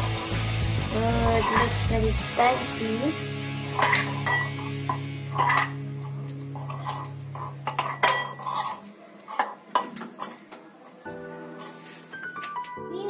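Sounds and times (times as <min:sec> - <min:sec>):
metal spoon scraping glass bowl: 0:01.2 - 0:01.8, 0:03.8 - 0:05.8, 0:06.6 - 0:09.6.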